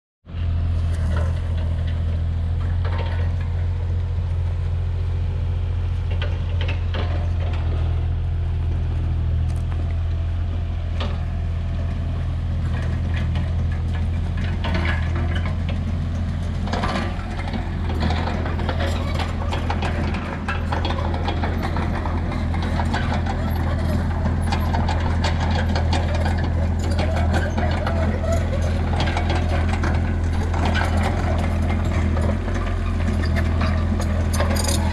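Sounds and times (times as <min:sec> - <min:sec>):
backhoe engine idling: 0:00.3 - 0:34.9
clicks and clanks: 0:12.6 - 0:34.9.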